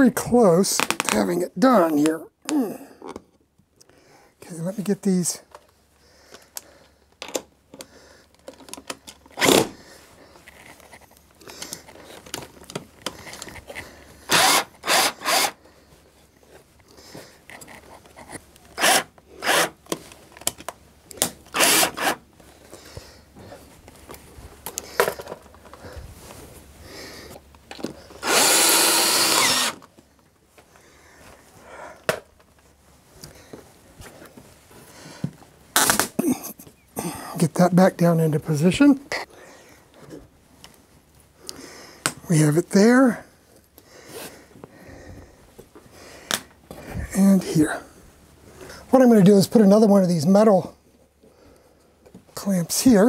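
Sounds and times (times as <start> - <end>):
cordless drill driving screws: 14.3 - 15.6, 18.8 - 19.8, 21.5 - 22.2, 28.2 - 29.9.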